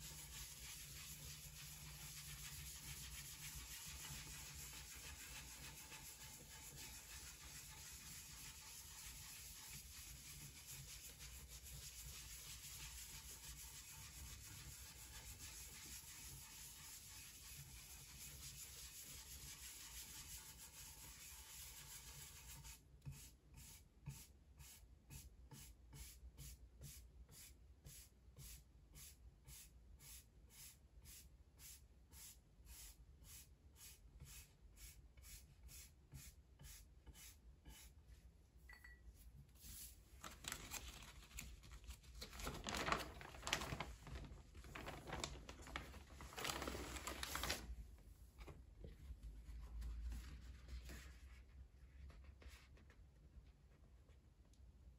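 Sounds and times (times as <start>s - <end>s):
brush scrubbing wooden block: 0.0s - 22.8s.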